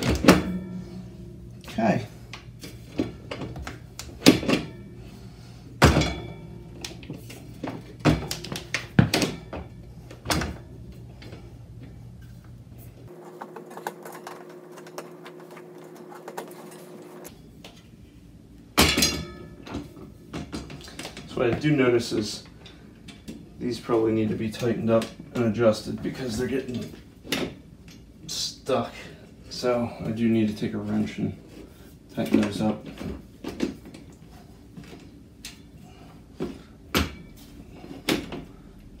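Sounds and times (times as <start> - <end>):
metal gate rattling clank: 0.0 - 3.0.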